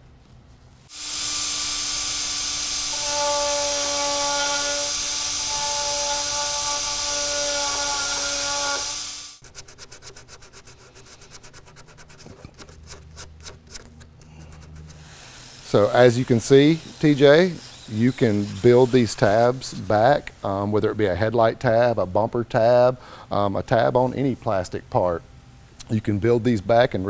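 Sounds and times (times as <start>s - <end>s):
rotary power tool whining: 0.9s - 9.4s, 15.2s - 19.6s
abrasive pad rubbing plastic: 2.9s - 19.8s.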